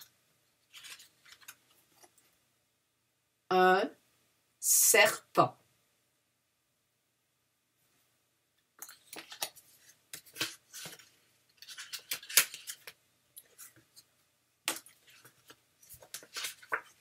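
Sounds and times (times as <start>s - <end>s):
cards being shuffled: 0.7s - 2.2s, 8.8s - 14.1s, 14.7s - 17.0s.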